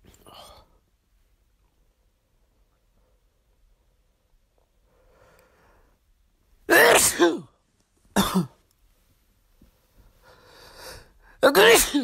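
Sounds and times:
faint breath in: 4.8s - 6.0s, 9.9s - 11.4s
person sneezing: 6.7s - 7.5s, 11.4s - 12.0s.

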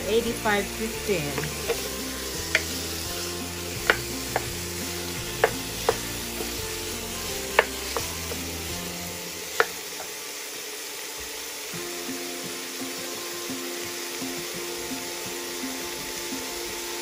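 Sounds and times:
meat sizzling in pan: 0.0s - 17.0s
wooden spoon knocking on pan: 1.3s - 8.8s, 9.5s - 10.1s.

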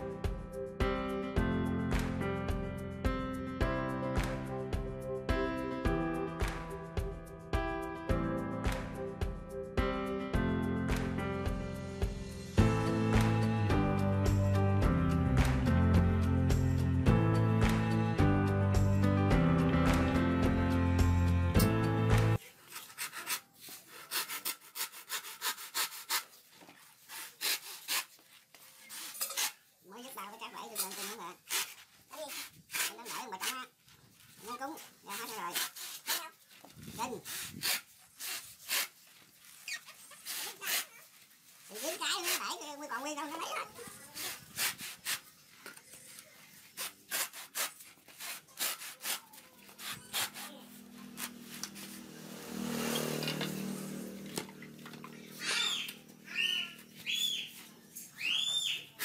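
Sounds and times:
music: 0.0s - 22.4s
blade cutting coconut husk: 22.4s - 28.2s, 28.8s - 29.6s, 30.6s - 33.7s, 34.5s - 45.4s, 46.7s - 57.4s.

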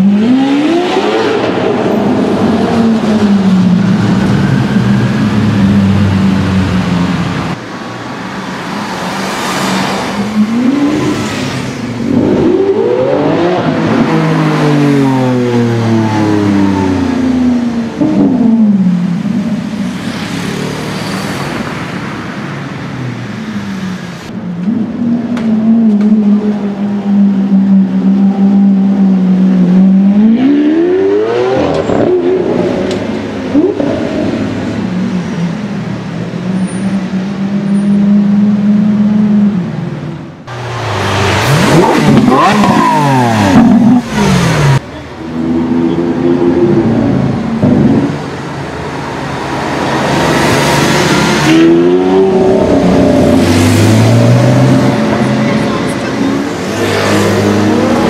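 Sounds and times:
car engine revving: 40.4s - 58.0s.

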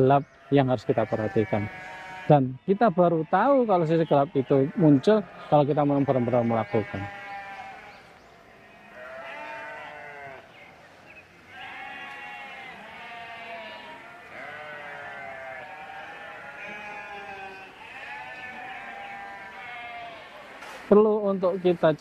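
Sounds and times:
goats and sheep bleating: 0.0s - 21.4s.

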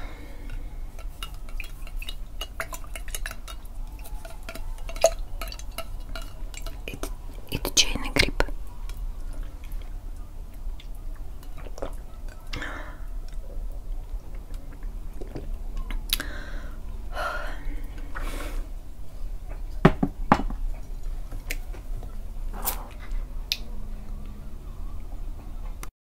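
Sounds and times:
sipping through a straw: 22.6s - 23.0s.

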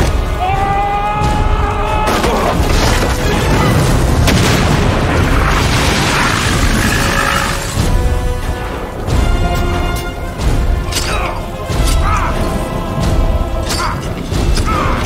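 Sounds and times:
film music: 0.0s - 15.0s
large fiery explosion: 1.4s - 9.2s.

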